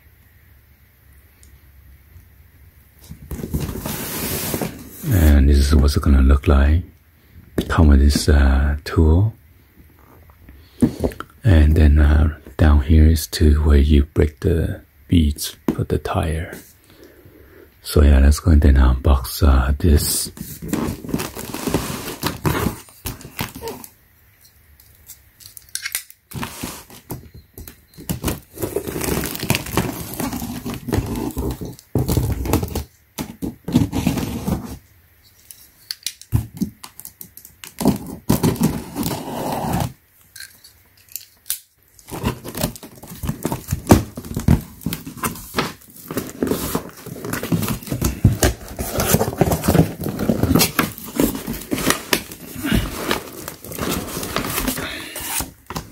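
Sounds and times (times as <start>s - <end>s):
packing paper rustling: 3.1s - 5.1s, 20.3s - 23.9s, 26.3s - 34.8s, 36.3s - 40.0s, 42.0s - 55.9s
packing tape tearing: 20.6s - 23.9s, 25.0s - 27.1s, 28.0s - 34.6s, 36.0s - 40.0s, 41.1s - 55.9s.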